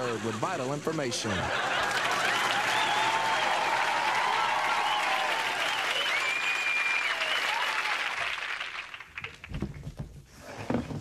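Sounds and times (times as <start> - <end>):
audience applauding and cheering: 1.6 - 9.6
whistle: 4.8 - 7.8.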